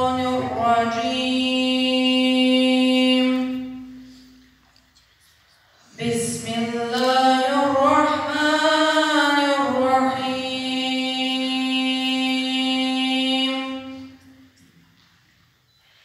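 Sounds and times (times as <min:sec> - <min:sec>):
boy chanting: 0:00.0 - 0:04.2, 0:05.9 - 0:14.2.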